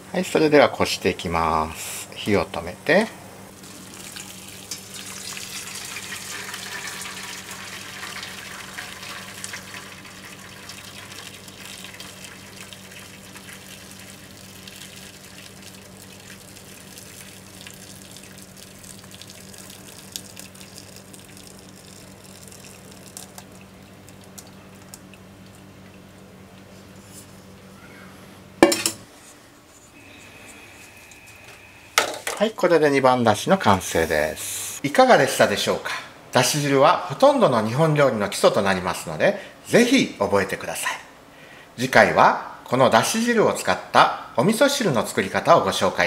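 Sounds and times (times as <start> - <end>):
broth pouring and splashing: 3.6 - 26.0
liquid trickling and dripping: 3.6 - 26.7.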